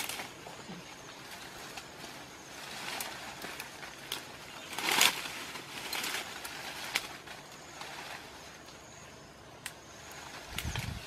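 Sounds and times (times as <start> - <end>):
leaves and vines rustling: 0.0 - 11.0.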